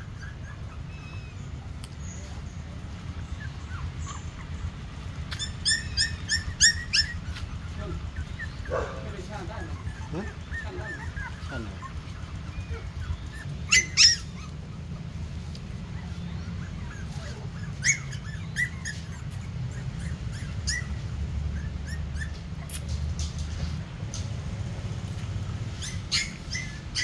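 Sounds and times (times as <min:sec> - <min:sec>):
puppies yipping and squealing: 0:00.0 - 0:27.0.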